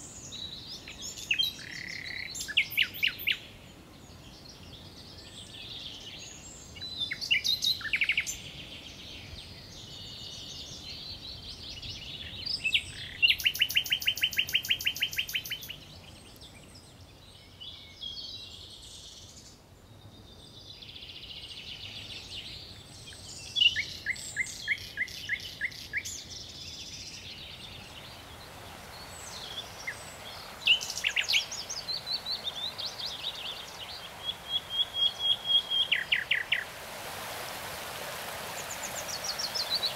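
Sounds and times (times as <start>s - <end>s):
songbirds singing: 0.0s - 39.9s
water spilling over a weir: 28.2s - 39.9s.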